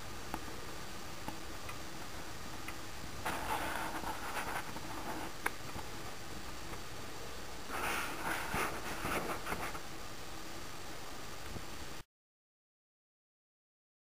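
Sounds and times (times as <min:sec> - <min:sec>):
steady hiss: 0:00.0 - 0:12.1
rustling: 0:03.2 - 0:06.8, 0:07.7 - 0:09.9.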